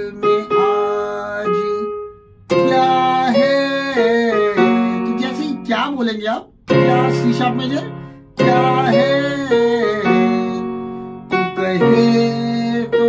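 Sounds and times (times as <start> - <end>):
electronic keyboard melody: 0.0 - 13.0.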